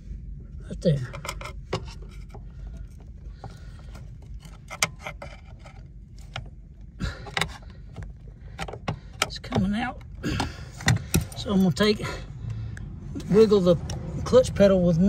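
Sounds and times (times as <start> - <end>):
screwdriver clicking and scraping metal: 1.1 - 10.1.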